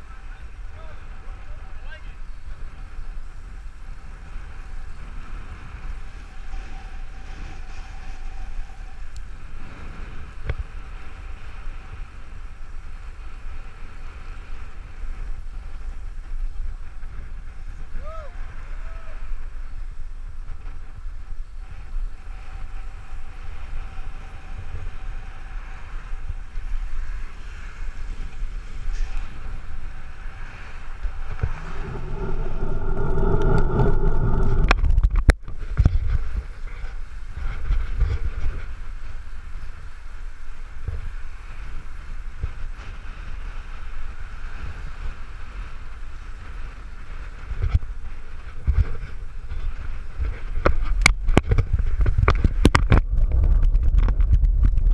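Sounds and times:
wind buffeting microphone: 0.0 - 54.9
loud steady hum: 31.0 - 35.4.

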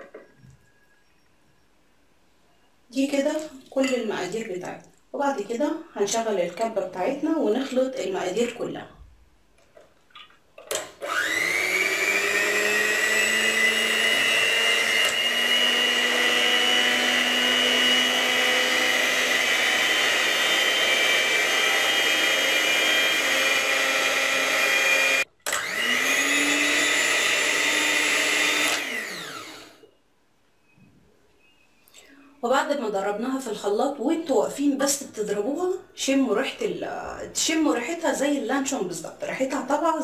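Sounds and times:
electric mixer whining: 10.8 - 29.9.

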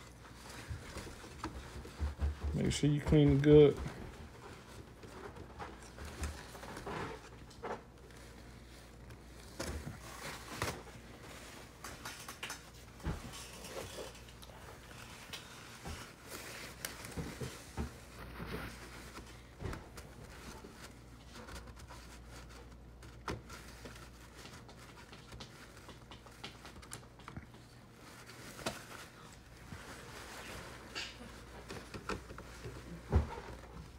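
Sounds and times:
paper towel rubbing: 12.8 - 33.9
clicks and taps on plastic: 24.4 - 27.7.

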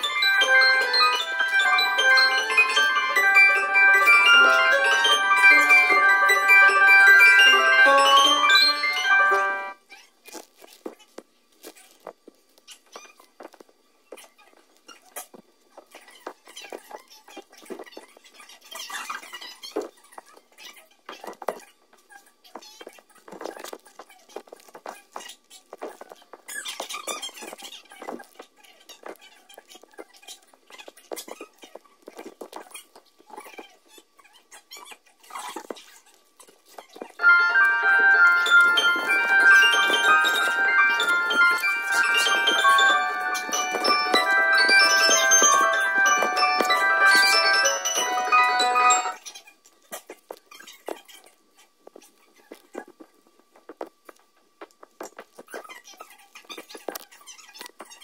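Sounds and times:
sped-up high-pitched chatter: 0.0 - 9.8, 37.2 - 49.4
dance shoes tapping and scuffing: 52.6 - 55.6.

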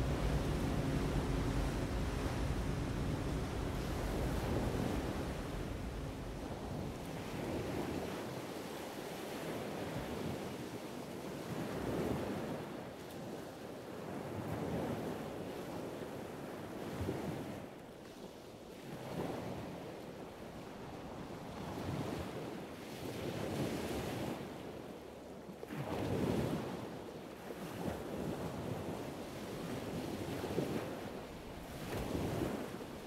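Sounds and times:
wind noise: 0.0 - 8.2
rushing water like surf: 0.0 - 9.7, 27.5 - 33.0.

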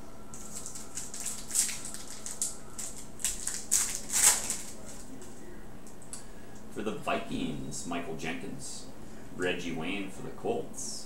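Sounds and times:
foil pack crinkling: 0.3 - 5.4.

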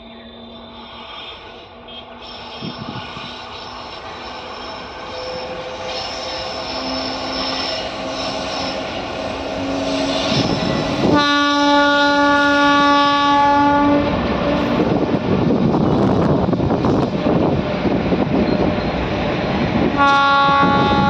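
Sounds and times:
electric locomotive motor whine: 0.0 - 21.0
train horn blast: 4.8 - 14.8, 20.0 - 21.0.

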